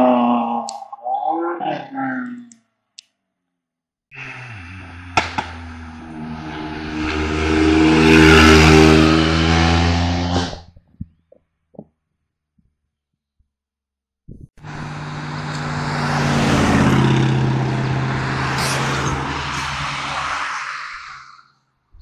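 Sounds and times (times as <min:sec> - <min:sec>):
race car engine passing: 0:04.2 - 0:10.6, 0:14.6 - 0:21.2.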